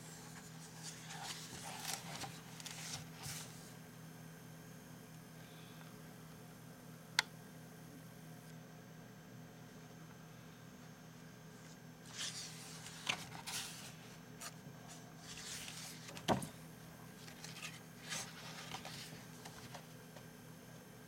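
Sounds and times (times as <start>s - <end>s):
faint steady hum: 0.0s - 21.0s
paper pages rustling: 0.2s - 3.7s, 12.1s - 16.6s, 17.2s - 19.9s.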